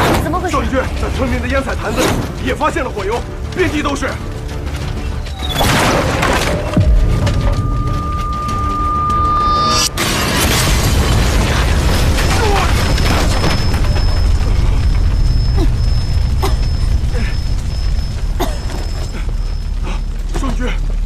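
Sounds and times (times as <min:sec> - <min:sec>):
fire rumbling and crackling: 0:00.0 - 0:21.0
fire bursting with a boom: 0:09.8 - 0:19.8.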